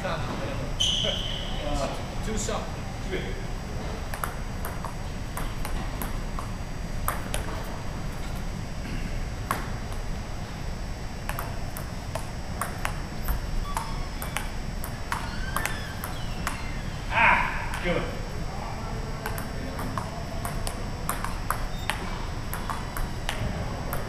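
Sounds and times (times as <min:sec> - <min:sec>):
table tennis ball clicking: 0:04.1 - 0:07.6, 0:11.2 - 0:16.8, 0:19.2 - 0:24.0.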